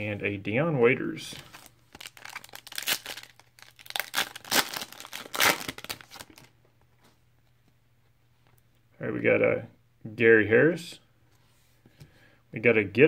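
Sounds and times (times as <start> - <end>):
foil wrapper tearing and crinkling: 1.5 - 6.5.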